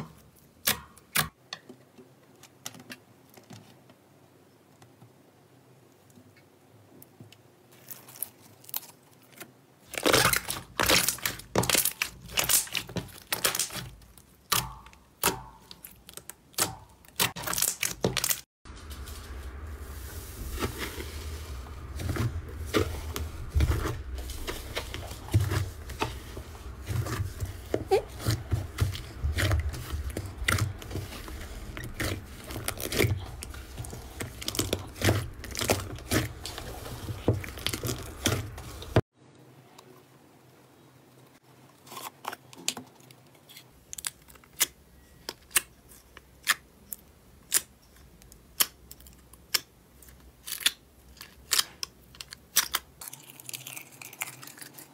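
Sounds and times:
slime squishing and crackling: 7.7s - 39.0s, 47.4s - 54.9s.

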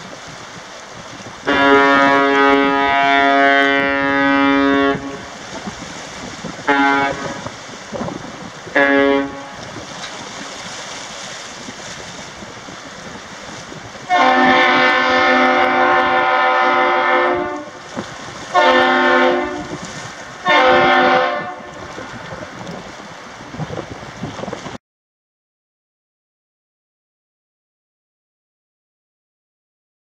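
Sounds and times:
wind noise on microphone: 0.0s - 24.8s
ship horn blasts: 1.4s - 7.8s, 8.4s - 10.0s, 14.0s - 22.6s.

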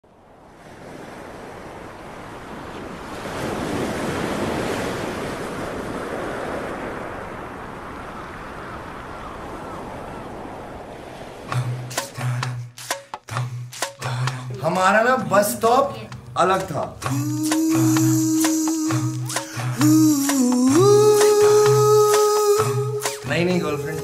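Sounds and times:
wind: 0.0s - 12.8s
sea waves: 0.0s - 24.0s.

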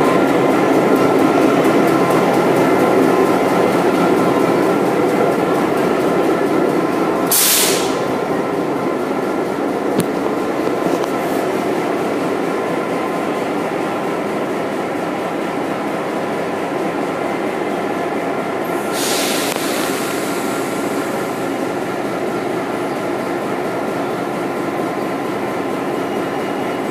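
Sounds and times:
diesel locomotive idling: 0.0s - 26.9s
air hiss: 7.3s - 8.0s, 18.8s - 21.6s.

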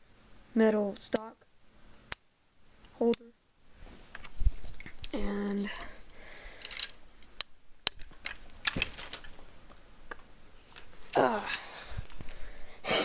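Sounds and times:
rifle clicks and knocks: 7.8s - 9.4s.

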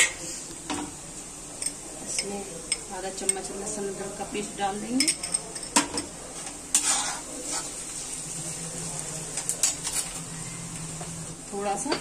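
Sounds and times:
onions sizzling in hot oil: 0.0s - 5.0s, 6.3s - 12.0s
spoon scraping against pan: 6.4s - 8.1s.

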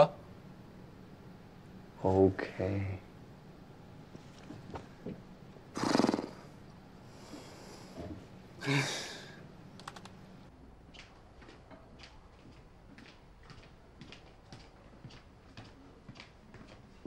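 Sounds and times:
man exhaling: 7.3s - 9.4s
man grunting: 8.6s - 9.3s
keyboard typing clicks: 9.8s - 10.2s.

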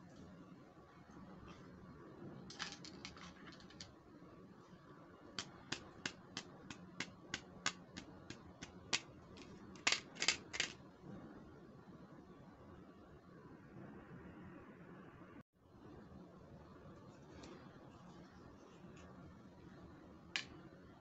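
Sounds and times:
plastic brush bristles clicking: 5.4s - 10.8s.

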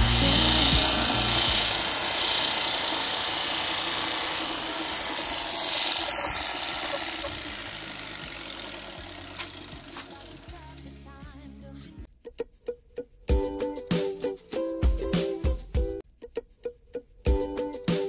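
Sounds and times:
machine running: 0.0s - 11.0s.

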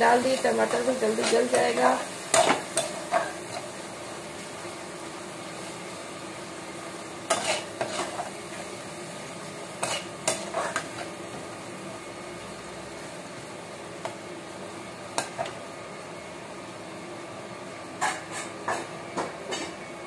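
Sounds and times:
food sizzling in pot: 0.0s - 20.0s
spatula scraping metal pot: 7.3s - 8.2s.

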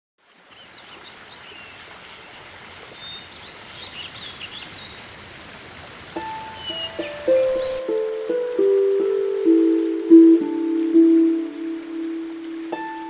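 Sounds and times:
small birds chirping: 0.5s - 12.8s
steady rushing hiss: 4.4s - 13.0s.

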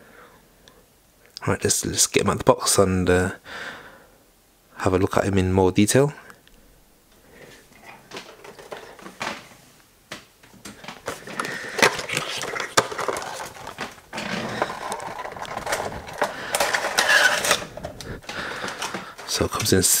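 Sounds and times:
plastic insert sliding out of box: 11.1s - 19.3s.

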